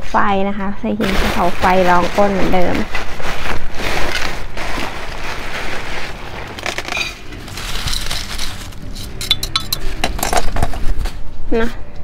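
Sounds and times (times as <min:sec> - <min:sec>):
plastic bag rustling: 0:01.0 - 0:11.2
gravel pouring into pot: 0:03.8 - 0:10.7.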